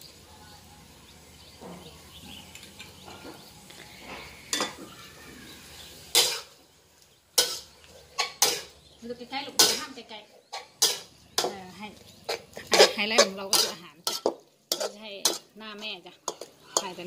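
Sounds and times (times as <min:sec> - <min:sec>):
metal spatula scraping a wok: 0:03.3 - 0:04.9, 0:05.9 - 0:06.6, 0:07.4 - 0:08.9, 0:09.5 - 0:17.0.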